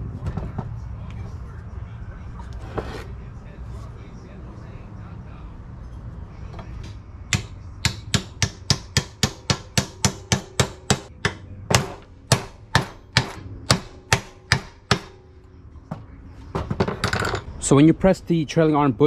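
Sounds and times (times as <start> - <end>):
hammer striking steel: 6.9 - 15.3.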